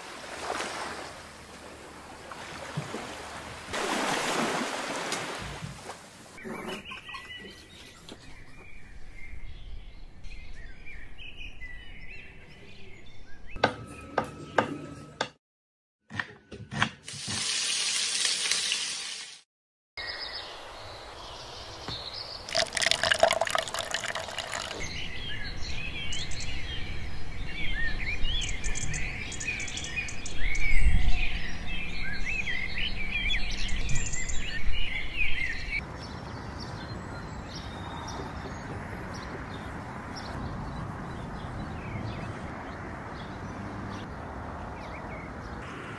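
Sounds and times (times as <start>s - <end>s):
birds chirping: 6.2s - 15.0s, 20.0s - 45.9s.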